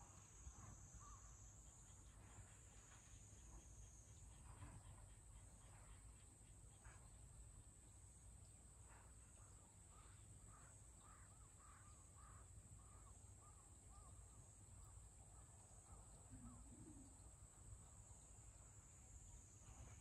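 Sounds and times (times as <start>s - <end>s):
crow cawing: 10.0s - 14.1s.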